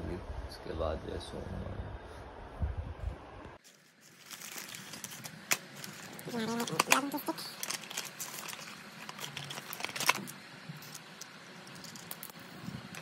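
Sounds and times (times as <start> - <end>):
packaging rustling: 3.6 - 13.0.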